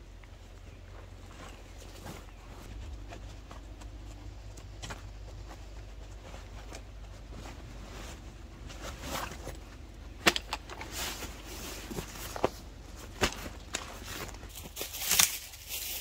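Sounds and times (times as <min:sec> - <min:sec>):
nylon sack and straps rustling: 0:00.7 - 0:16.0
buckles clicking: 0:08.7 - 0:15.4.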